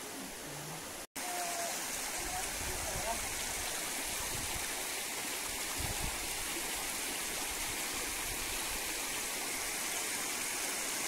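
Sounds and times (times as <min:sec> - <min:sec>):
river rippling over stones: 0:00.0 - 0:11.0.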